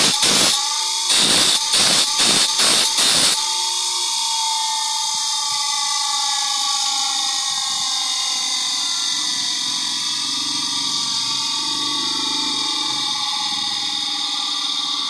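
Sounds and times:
grinding wheel whining: 0.0s - 8.0s.

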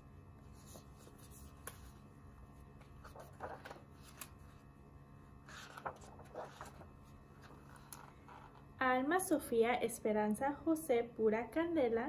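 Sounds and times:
book pages rustling: 0.4s - 4.7s, 5.4s - 8.6s.

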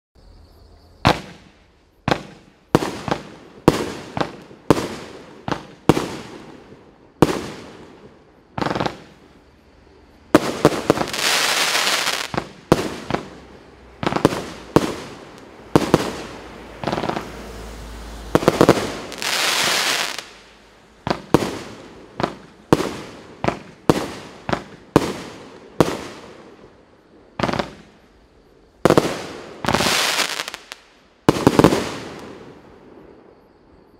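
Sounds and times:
fireworks bangs: 1.0s - 9.4s, 10.3s - 28.0s, 28.8s - 33.2s
fireworks hissing: 10.3s - 26.6s, 28.8s - 32.6s.

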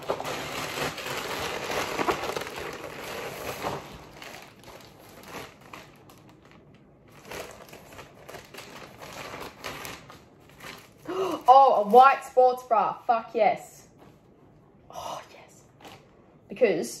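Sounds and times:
packaging crinkling and rustling: 0.0s - 12.3s.

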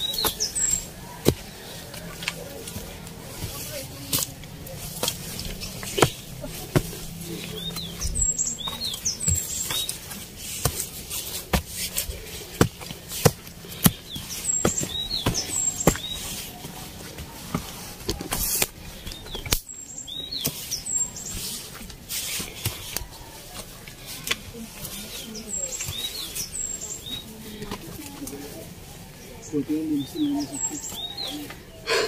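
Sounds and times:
bird chirping: 0.0s - 1.9s, 5.3s - 10.1s, 13.6s - 16.6s, 18.9s - 21.6s, 25.0s - 28.6s, 29.2s - 32.0s
footsteps on dry leaves: 0.0s - 19.3s.

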